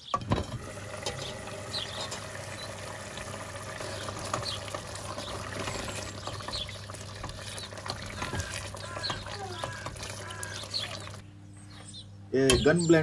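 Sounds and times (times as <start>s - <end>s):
thick sauce bubbling in pot: 0.9s - 11.2s
wooden spoon stirring: 3.8s - 11.2s
bird chirps: 4.4s - 13.0s.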